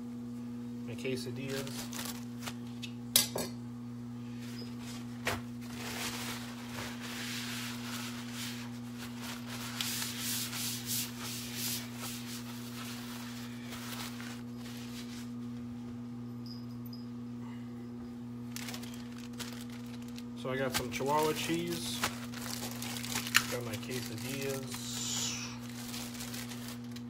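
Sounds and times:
low electrical hum: 0:00.0 - 0:27.0
hands rubbing tortillas: 0:05.9 - 0:15.4.

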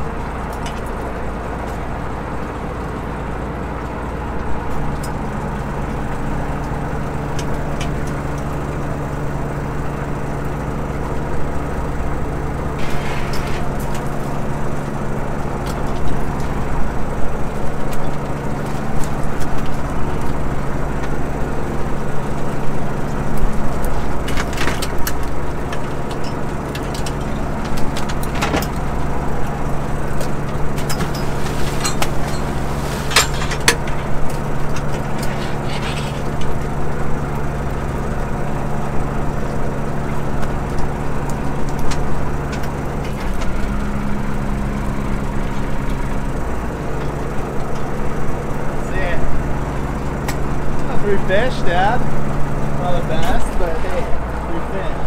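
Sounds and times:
boat engine and machinery running: 0:00.0 - 0:55.0
sharp clicks from gear: 0:22.4 - 0:36.8, 0:39.4 - 0:43.9.

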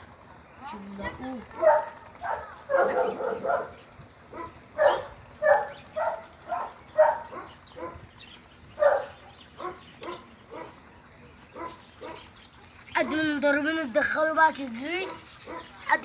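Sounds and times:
dog barking: 0:01.5 - 0:08.1, 0:08.8 - 0:10.8, 0:11.6 - 0:12.3, 0:15.0 - 0:15.8.

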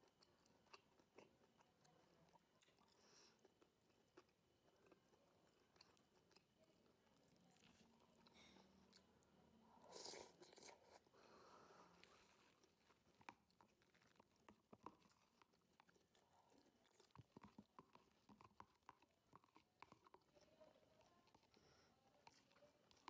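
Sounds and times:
chewing: 0:00.0 - 0:23.0.

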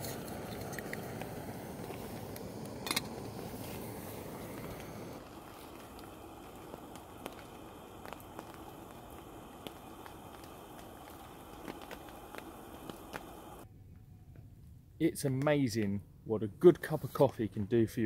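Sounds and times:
gas camping stove hissing: 0:00.0 - 0:13.7
rainwater dripping on leaves: 0:05.2 - 0:13.6.

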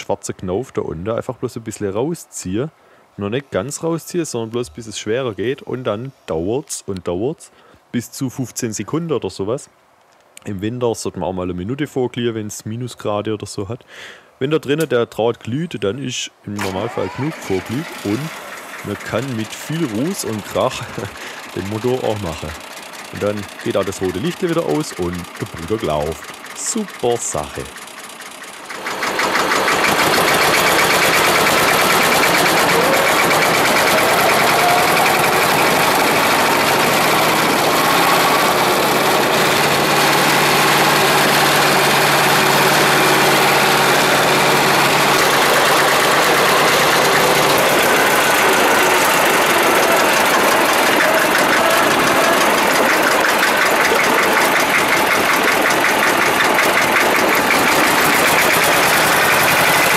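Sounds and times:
tractor diesel engine running: 0:16.6 - 0:59.9.

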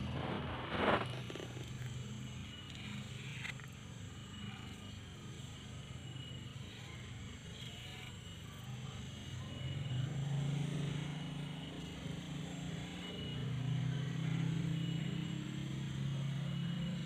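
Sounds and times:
low engine hum: 0:00.0 - 0:04.9.

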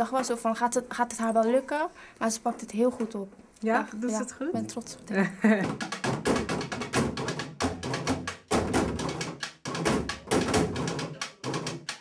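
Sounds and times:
sticks drumming on plastic bins: 0:05.6 - 0:12.0.

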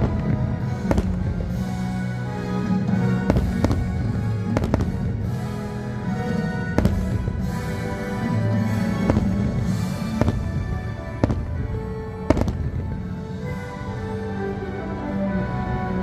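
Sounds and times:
fireworks bangs: 0:00.0 - 0:02.1, 0:03.0 - 0:05.6, 0:06.5 - 0:13.2
music with long held notes: 0:00.0 - 0:16.0.

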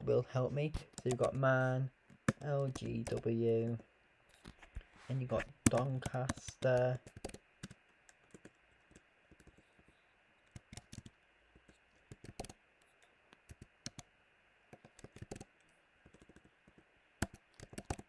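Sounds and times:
faint keyboard keystrokes: 0:00.8 - 0:01.4, 0:02.2 - 0:03.8, 0:05.6 - 0:09.6, 0:10.5 - 0:14.1, 0:14.7 - 0:18.0.

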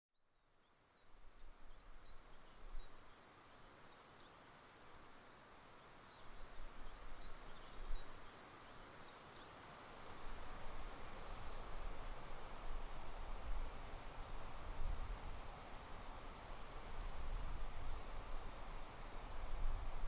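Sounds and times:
songbirds chirping: 0:00.2 - 0:10.0
steady outdoor hiss: 0:00.2 - 0:20.0
wind gusts on microphone: 0:10.2 - 0:20.0.

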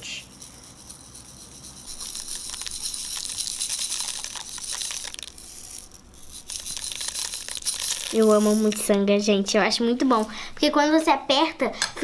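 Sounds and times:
metallic beads rattling: 0:00.0 - 0:09.0.

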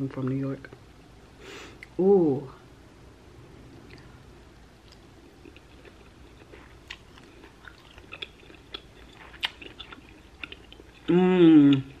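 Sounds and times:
chewing soft cabbage: 0:04.8 - 0:12.0.

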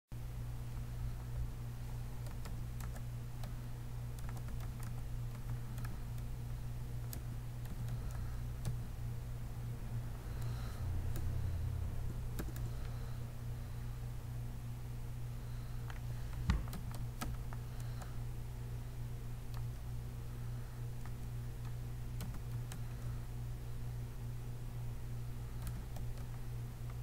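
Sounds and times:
steady low hum: 0:00.2 - 0:27.0
computer keyboard keystrokes: 0:02.2 - 0:06.4, 0:07.0 - 0:08.8, 0:10.3 - 0:11.3, 0:12.3 - 0:13.0, 0:15.8 - 0:18.1, 0:19.5 - 0:19.8, 0:21.0 - 0:23.1, 0:25.5 - 0:27.0.

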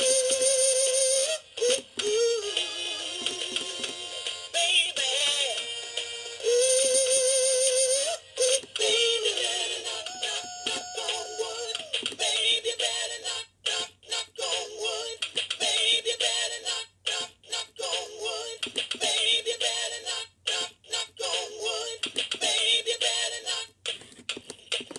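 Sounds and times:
electronic toy bird song: 0:00.0 - 0:23.7.

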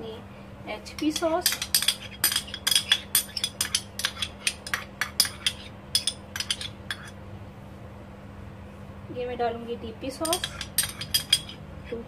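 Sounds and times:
metal spoon clinking on dish: 0:00.9 - 0:07.2, 0:10.2 - 0:11.6.

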